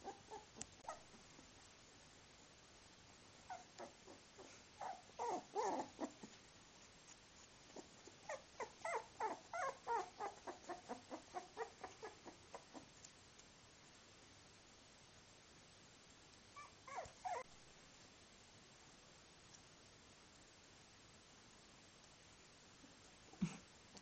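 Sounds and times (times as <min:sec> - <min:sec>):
puppies whimpering and squeaking: 0:00.0 - 0:01.1, 0:04.8 - 0:06.3, 0:07.8 - 0:12.8, 0:16.6 - 0:17.5.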